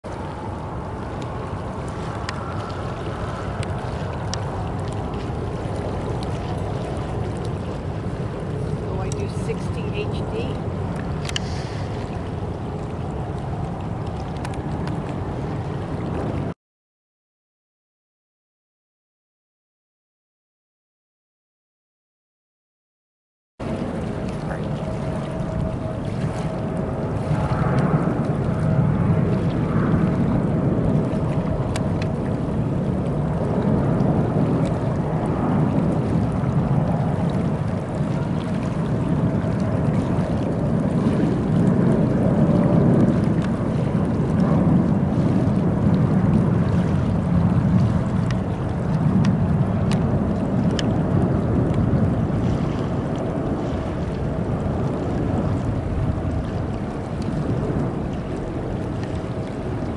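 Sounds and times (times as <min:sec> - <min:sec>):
jet engines rumbling: 0:00.1 - 0:16.5, 0:23.6 - 0:59.9
faint engine whine: 0:23.6 - 0:59.8.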